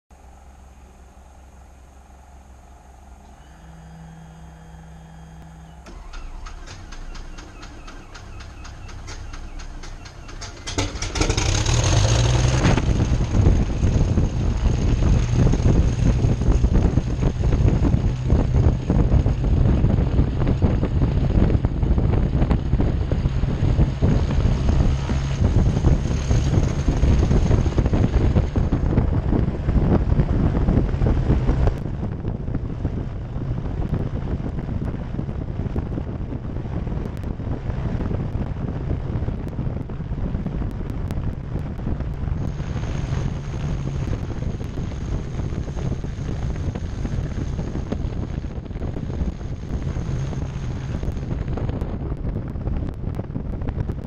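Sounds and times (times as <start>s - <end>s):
thin high whine: 0.1s - 10.9s
piston aircraft engines running: 0.1s - 54.0s
propeller wash buffeting microphone: 3.0s - 54.0s.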